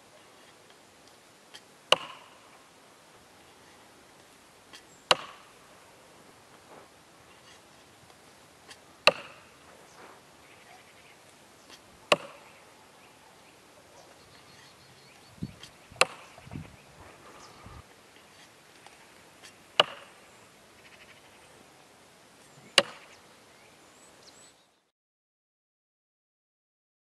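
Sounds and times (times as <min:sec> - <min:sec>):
tomahawk hitting log: 0:01.9 - 0:02.5, 0:05.1 - 0:05.6, 0:08.7 - 0:09.7, 0:11.7 - 0:12.5, 0:15.6 - 0:16.5, 0:19.8 - 0:20.2, 0:22.8 - 0:23.1.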